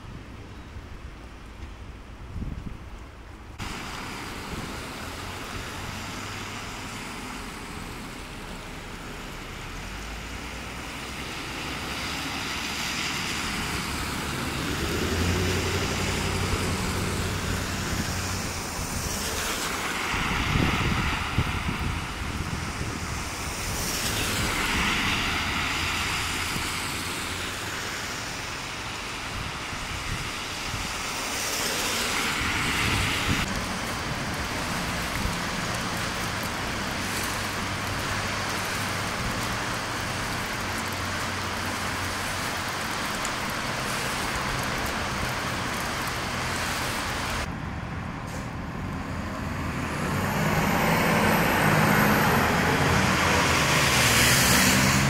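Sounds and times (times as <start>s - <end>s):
street traffic: 0.0s - 55.0s
vehicle passing: 11.3s - 21.8s, 49.1s - 55.0s.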